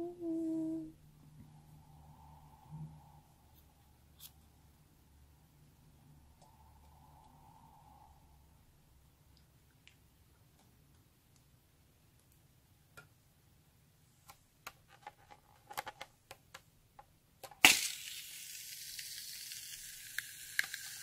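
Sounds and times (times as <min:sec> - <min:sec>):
shaving foam spraying hiss: 0:17.7 - 0:21.0.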